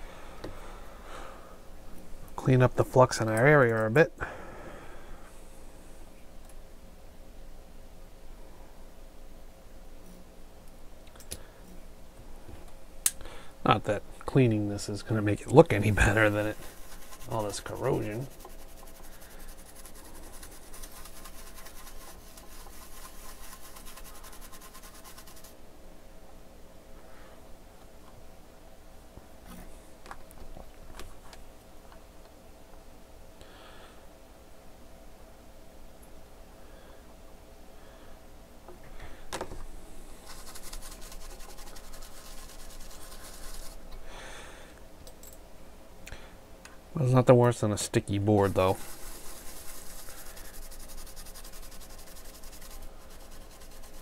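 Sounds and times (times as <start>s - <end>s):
faint steady hum: 0.0s - 54.0s
scrubbing a circuit board: 15.7s - 25.6s, 40.2s - 43.8s, 48.2s - 54.0s.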